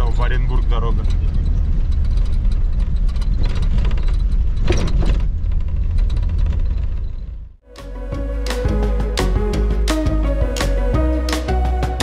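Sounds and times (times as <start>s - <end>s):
car engine and tyre rumble: 0.0s - 7.6s.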